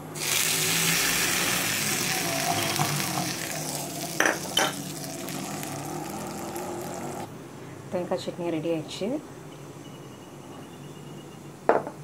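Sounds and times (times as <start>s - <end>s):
hot oil sizzling: 0.0s - 7.3s.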